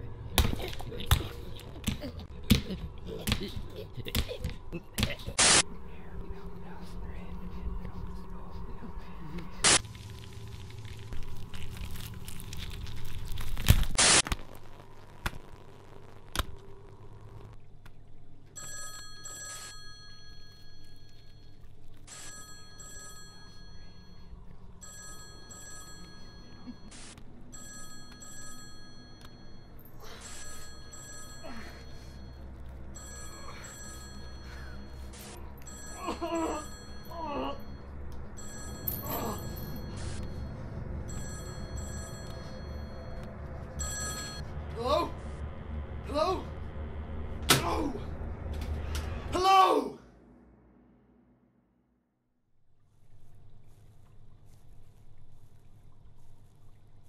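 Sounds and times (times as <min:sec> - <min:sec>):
telephone ringing: 0:18.5 - 0:44.5.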